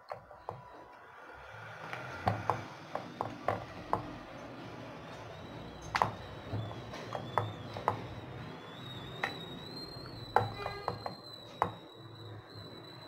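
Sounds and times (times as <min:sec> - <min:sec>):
rolling pin rolling dough: 0:01.9 - 0:12.0
faint steady high tone: 0:05.0 - 0:13.0.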